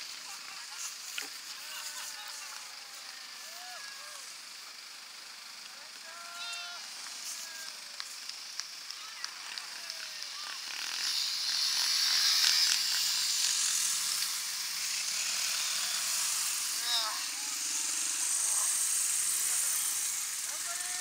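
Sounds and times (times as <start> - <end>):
off-road motorcycles passing: 0.0 - 21.0
short pitched calls: 5.8 - 8.0, 8.9 - 21.0
sharp clicks: 7.0 - 14.4.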